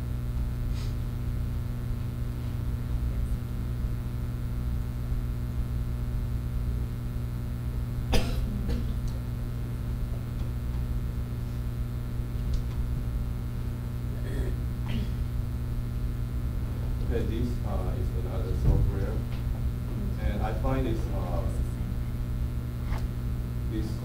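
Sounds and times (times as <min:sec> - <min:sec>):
low room hum: 0:00.0 - 0:24.0
person coughing: 0:08.1 - 0:09.0, 0:14.1 - 0:15.3.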